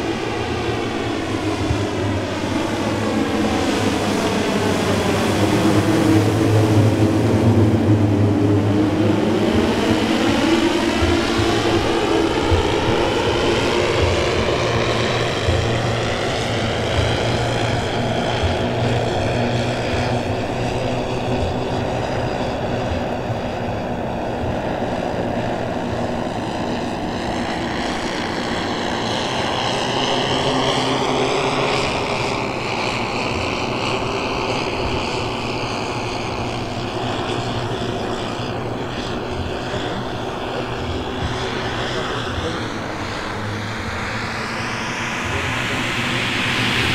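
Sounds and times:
model plane engines droning: 0.0s - 46.9s.

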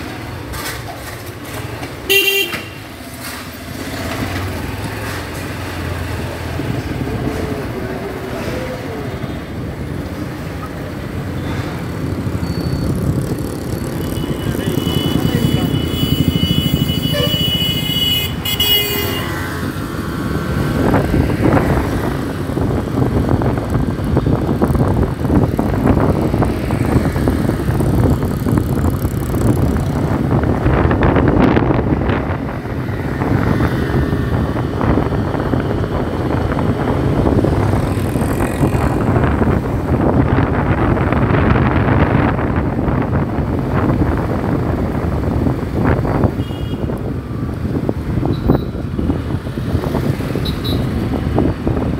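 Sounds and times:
road and wind noise: 0.0s - 51.9s
vehicle horn: 2.1s - 2.8s, 14.1s - 19.4s, 46.4s - 47.0s.

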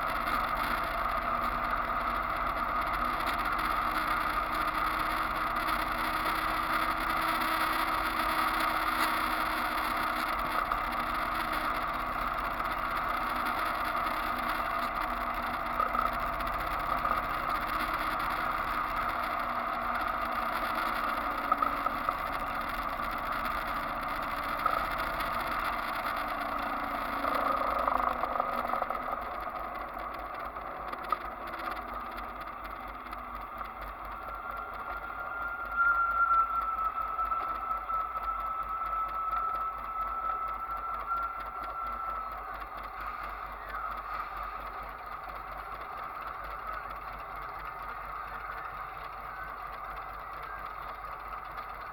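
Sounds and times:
motorcycle engine running: 0.0s - 51.9s.

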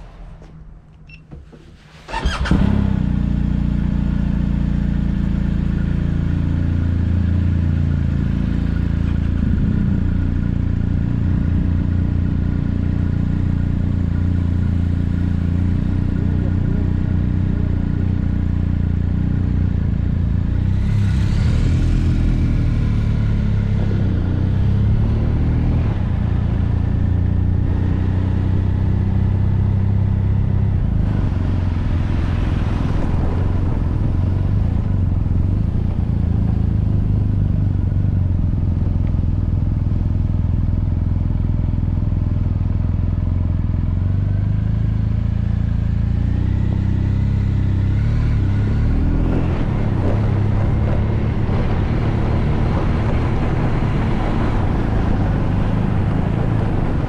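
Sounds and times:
motorcycle engine running: 1.3s - 57.0s.

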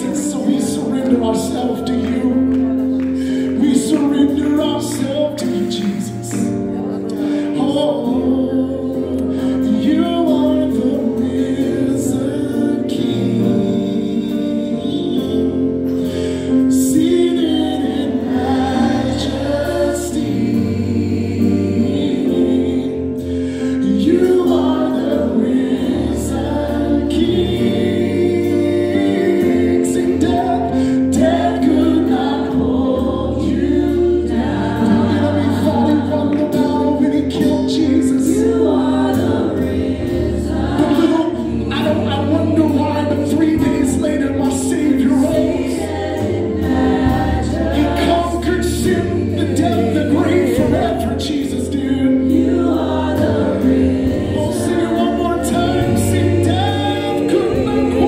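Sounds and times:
backing vocalists singing: 0.0s - 58.0s
bass: 0.0s - 58.0s
keyboard chords: 0.0s - 58.0s
man singing lead vocals: 0.0s - 58.0s
drums: 33.7s - 51.6s, 52.2s - 58.0s.

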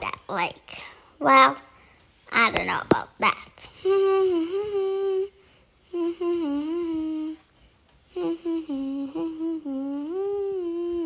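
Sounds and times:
person humming a tune: 3.8s - 7.5s, 8.1s - 11.0s.

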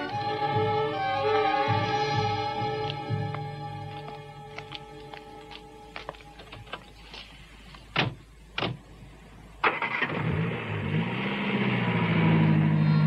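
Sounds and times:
car doors slamming: 7.9s - 8.9s
car engine starting and running: 8.0s - 13.0s.

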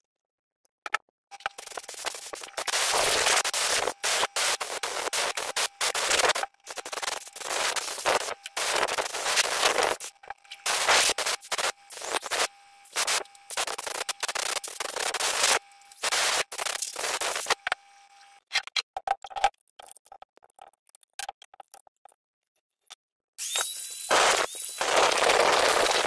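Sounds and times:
air hose blasts hissing: 1.6s - 17.5s.

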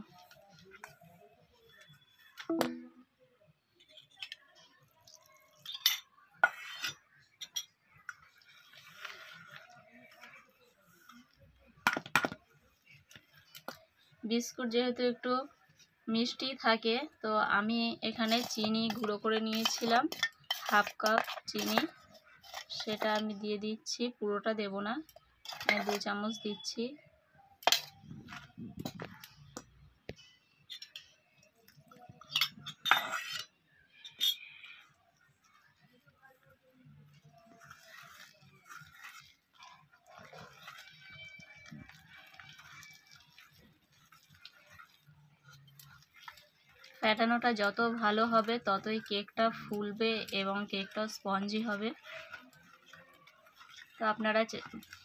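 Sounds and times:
soft scraping stir: 3.7s - 14.2s, 18.1s - 23.3s, 25.0s - 26.1s, 27.7s - 55.0s
milk pouring into bowl: 4.7s - 5.7s, 37.1s - 47.5s.

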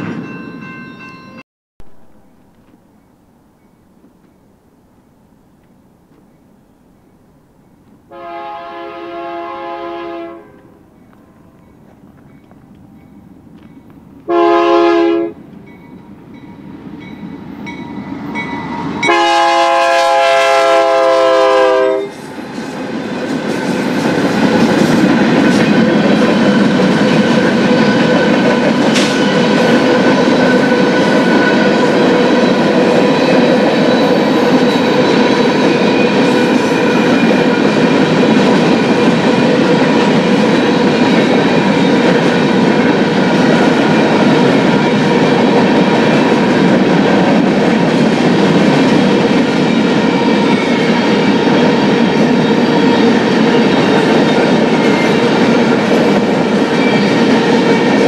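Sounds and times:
freight train passing: 0.0s - 58.0s
locomotive air horn: 8.1s - 10.8s, 14.3s - 15.4s, 19.0s - 22.2s.

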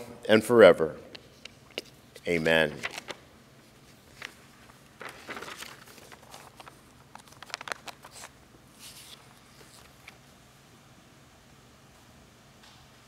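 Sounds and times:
paper rustling and crinkling: 2.7s - 3.2s, 3.8s - 10.2s.

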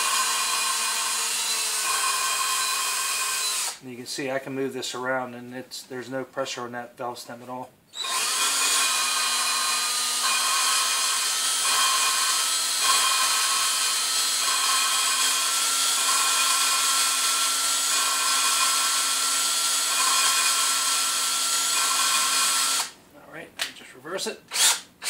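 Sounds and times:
drill motor running slowly: 0.0s - 3.8s, 8.0s - 23.0s, 24.5s - 24.8s.

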